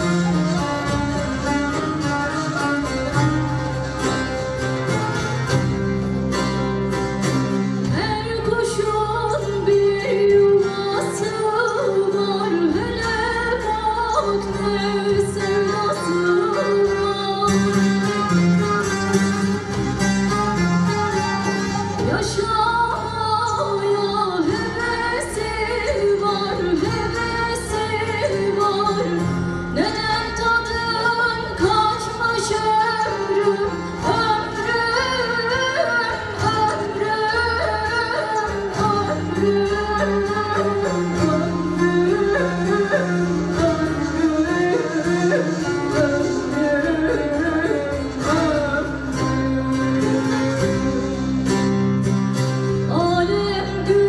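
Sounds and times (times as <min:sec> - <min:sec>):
lute ensemble playing: 0:00.0 - 0:54.0
woman singing: 0:07.8 - 0:18.3, 0:21.4 - 0:51.6, 0:52.6 - 0:54.0.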